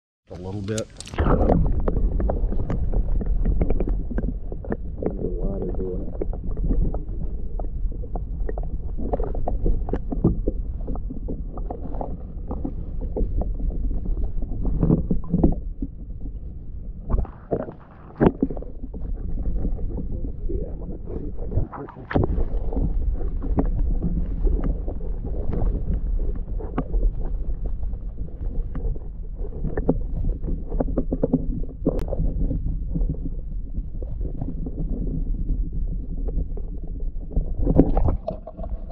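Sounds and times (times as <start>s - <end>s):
underwater rumble: 0.3s - 38.9s
water clicks and knocks: 0.4s - 16.0s, 17.0s - 27.3s, 37.3s - 38.9s.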